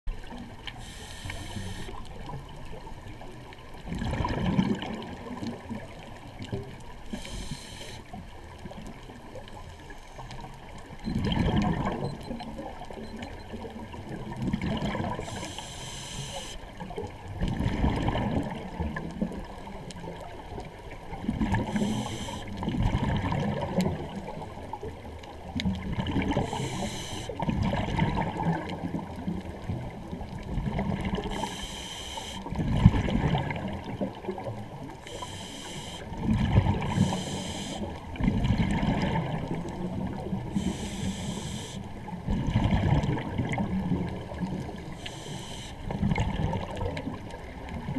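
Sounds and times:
scuba regulator hissing inhale: 0.8 - 2.0, 7.1 - 8.2, 15.1 - 16.6, 21.6 - 22.6, 26.4 - 27.4, 31.2 - 32.5, 35.0 - 36.2, 36.8 - 37.9, 40.5 - 41.9, 44.9 - 45.9.

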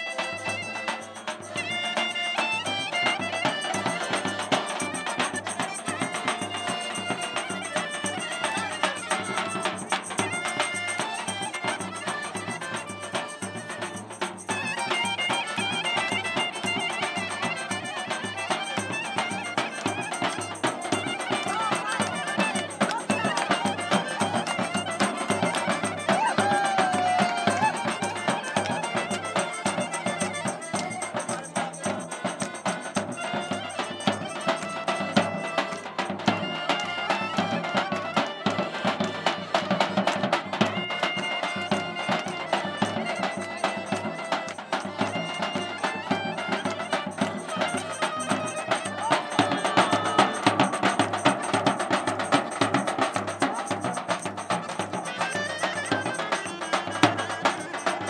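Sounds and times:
accordion: 0.0 - 58.0
drum beating dance rhythm: 0.0 - 58.0
clarinet melody: 54.6 - 58.0.

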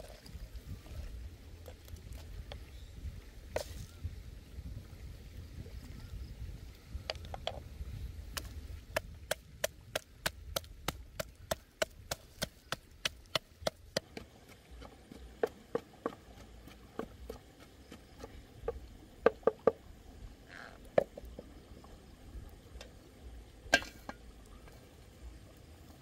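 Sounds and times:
pestle pounding in wooden mortar: 8.9 - 19.8.

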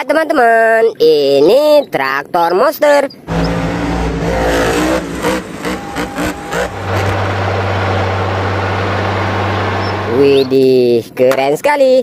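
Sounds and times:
monster truck engines revving: 3.3 - 10.9.

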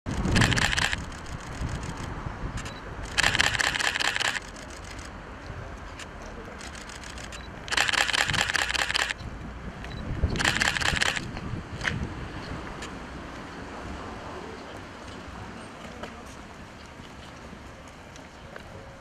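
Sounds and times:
camera shutters firing: 0.1 - 5.1, 6.6 - 9.2, 10.4 - 11.3
low background noise: 0.1 - 19.0.

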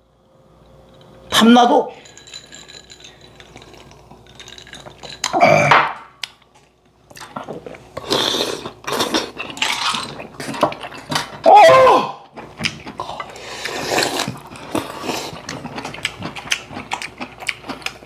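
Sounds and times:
utensils clinking on dishes: 1.9 - 6.0, 8.9 - 11.4
voiced exclamation: 11.4 - 12.2.

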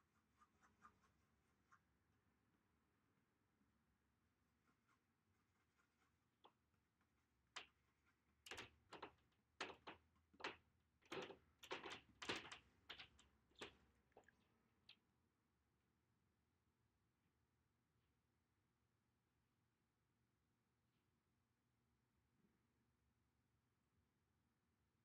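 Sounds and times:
faint knocks and clicks: 6.4 - 14.4.

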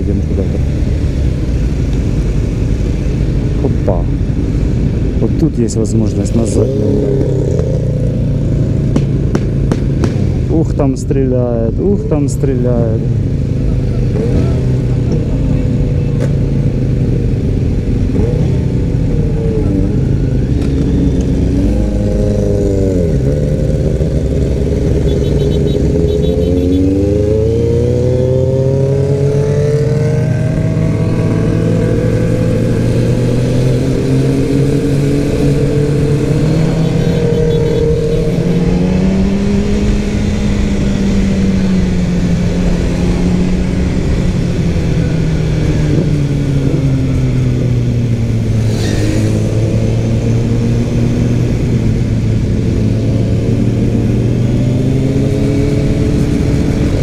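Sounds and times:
motorcycle engine running: 13.6 - 27.0.

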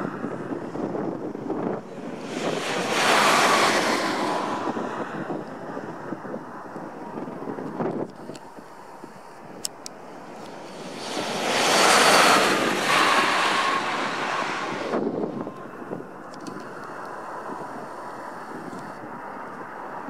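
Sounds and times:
wind on microphone: 0.0 - 20.0
coach passing by: 2.0 - 5.4, 10.3 - 15.5.

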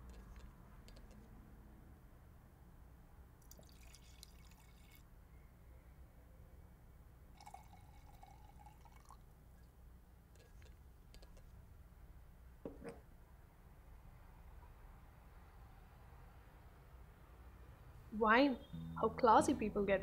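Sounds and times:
wine pouring into glass: 3.5 - 5.0, 7.4 - 9.2.

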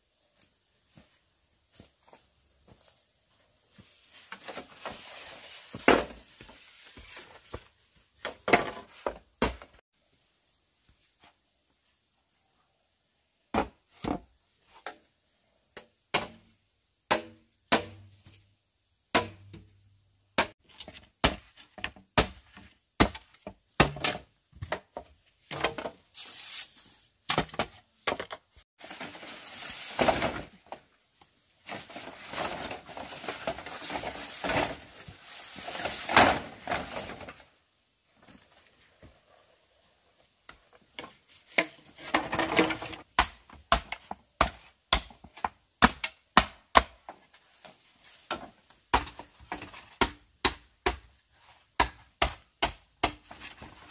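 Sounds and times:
wooden chops and knocks: 8.2 - 9.8, 17.1 - 18.1, 19.1 - 19.7, 20.4 - 25.9, 43.2 - 47.1, 48.3 - 51.1, 51.8 - 53.4.

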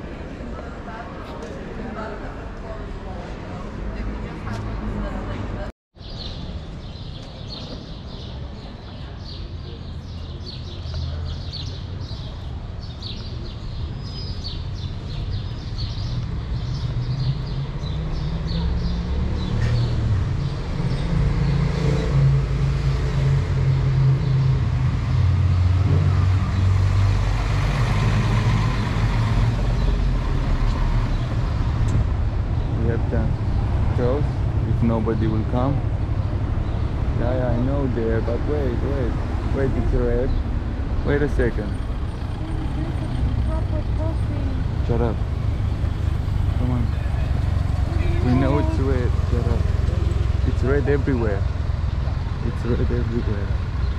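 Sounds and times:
birds chirping: 6.0 - 53.9
vehicle engine passing: 16.2 - 53.9.

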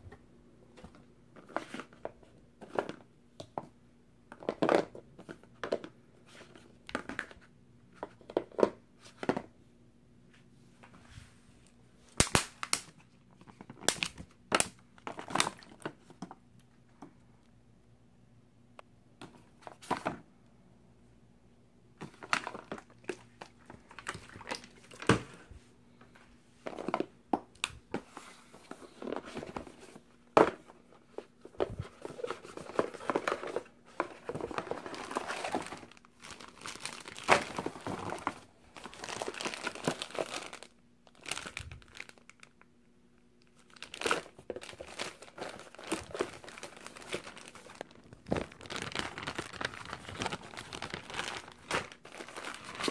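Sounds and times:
cardboard packaging rustling: 27.9 - 42.4, 43.6 - 52.9
plastic bag crinkling: 31.6 - 42.6, 43.4 - 52.9.

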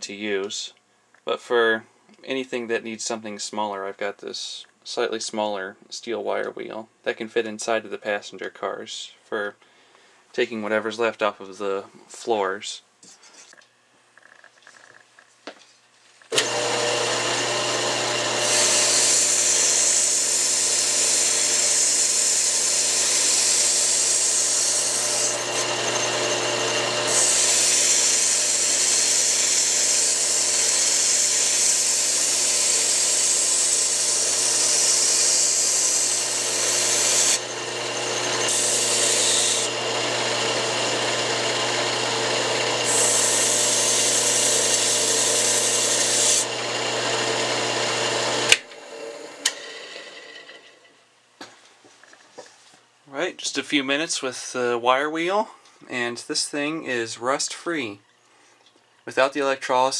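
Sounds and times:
drill press motor hum: 16.3 - 50.8.

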